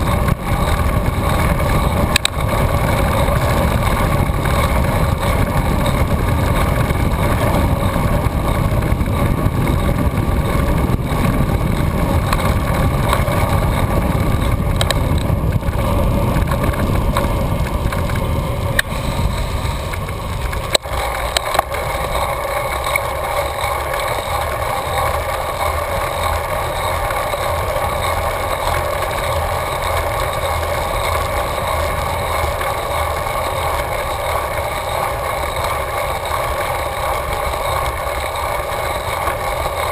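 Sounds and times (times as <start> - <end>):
constant hum: 0.0 - 39.9
wind buffeting microphone: 0.0 - 39.9
sharp clicks: 2.1 - 2.4, 14.7 - 15.3.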